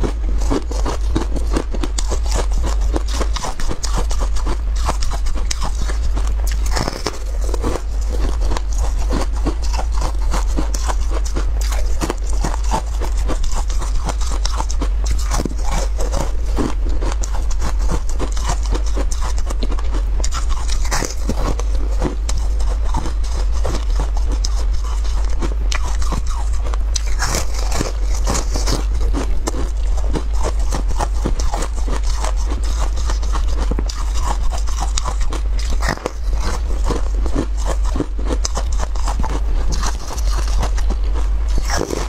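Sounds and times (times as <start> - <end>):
crunchy chewing of frozen dessert: 0.0 - 42.0
steady low hum: 0.0 - 42.0.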